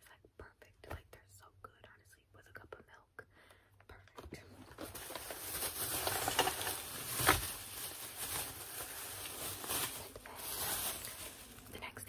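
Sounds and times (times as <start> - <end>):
rustling and handling noise: 3.9 - 12.0.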